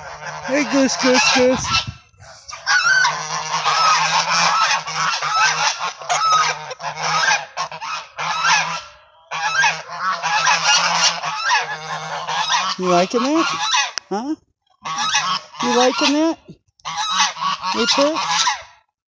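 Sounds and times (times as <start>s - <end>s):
geese honking: 0.0s - 14.1s, 14.8s - 18.8s.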